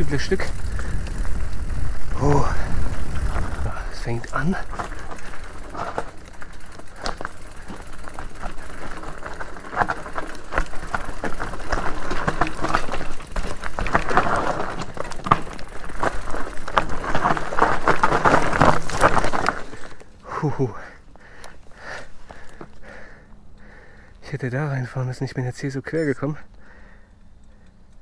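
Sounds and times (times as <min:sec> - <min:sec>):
bike knocks and rattles: 0:00.0 - 0:20.2
tyres rumbling over rock: 0:00.0 - 0:20.2.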